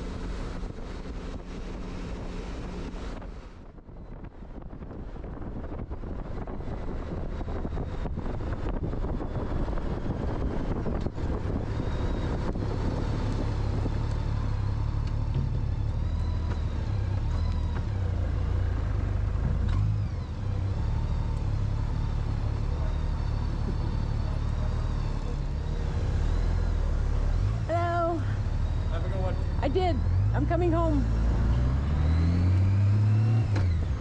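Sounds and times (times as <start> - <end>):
wind rush on microphone: 0.0 - 15.6.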